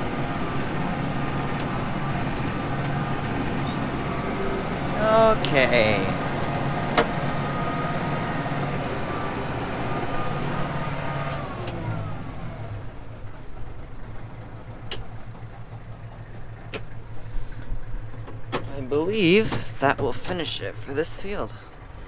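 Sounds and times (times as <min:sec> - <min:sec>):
mower machinery running: 0:00.0 - 0:18.4
tractor engine running: 0:00.0 - 0:22.0.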